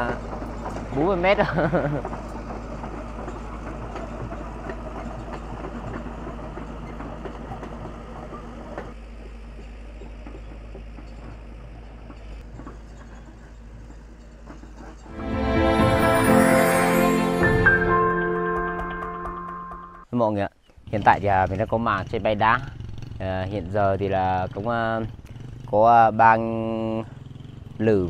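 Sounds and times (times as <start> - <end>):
excavator diesel engine running: 0.0 - 20.0
steel tracks clanking: 0.0 - 20.0.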